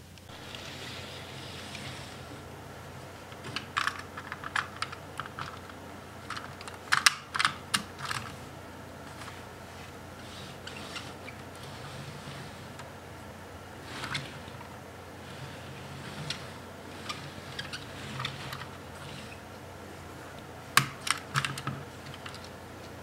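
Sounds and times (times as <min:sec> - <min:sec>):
plastic pieces clicking: 0:03.3 - 0:08.4, 0:16.0 - 0:19.4, 0:20.3 - 0:23.0.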